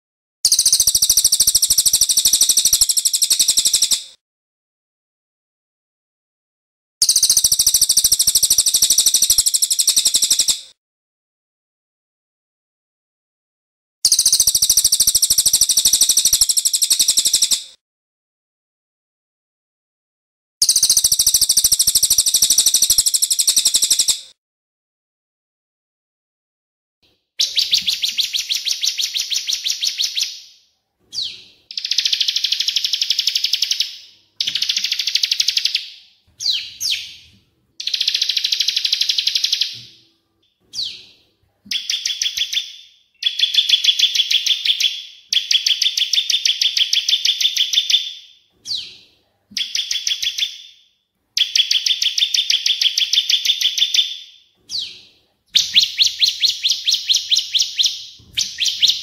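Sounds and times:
single bird chirps: 27.4s - 49.0s, 49.6s - 59.0s
high-pitched bird trills: 55.6s - 59.0s.

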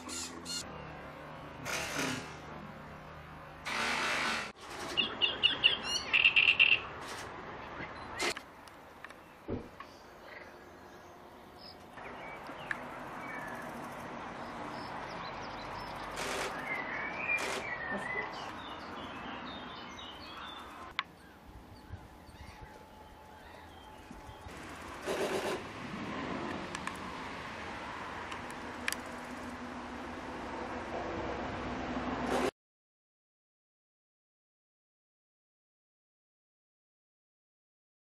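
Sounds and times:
bird singing harsh phrases: 5.0s - 6.9s, 14.8s - 24.5s
steady background rushing noise: 20.0s - 32.5s.

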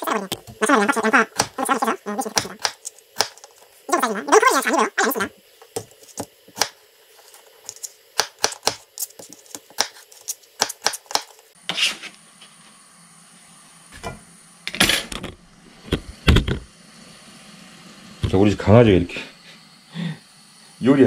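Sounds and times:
knife chopping on plastic board: 1.4s - 1.6s, 2.3s - 3.5s, 7.7s - 10.0s, 10.6s - 11.3s.

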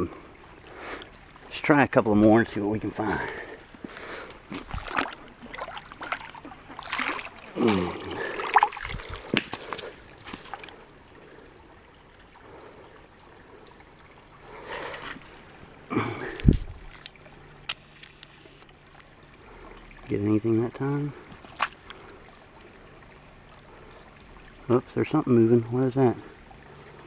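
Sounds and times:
water trickling: 0.0s - 27.0s
net sloshing through water: 4.4s - 10.8s, 21.3s - 22.4s.

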